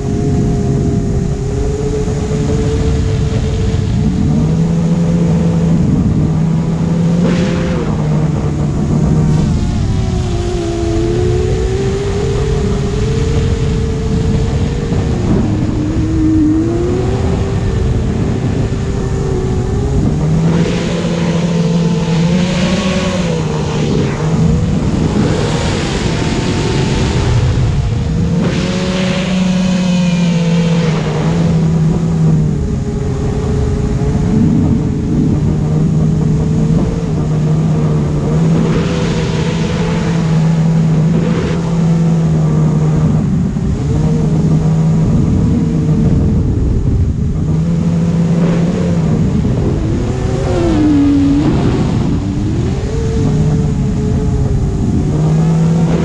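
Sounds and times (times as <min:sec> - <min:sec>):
motor and propeller whine: 0:00.0 - 0:56.0
rushing air noise: 0:00.0 - 0:56.0.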